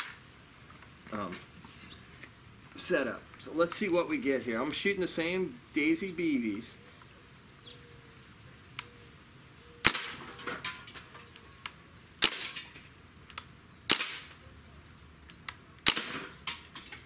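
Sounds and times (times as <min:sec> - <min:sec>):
air rifle shots popping: 0:09.8 - 0:10.6, 0:12.2 - 0:12.6, 0:13.9 - 0:14.4, 0:15.8 - 0:16.6.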